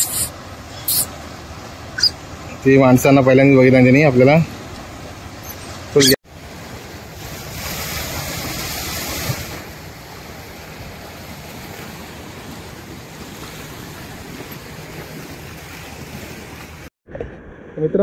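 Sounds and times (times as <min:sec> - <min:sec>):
waves washing on rocky shore: 0:03.7 - 0:16.9.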